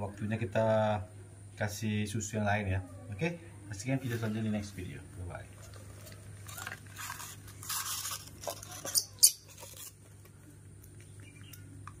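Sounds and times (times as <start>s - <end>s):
low steady hum: 0.0s - 12.0s
plastic bottle rustling scrapes: 5.8s - 10.2s.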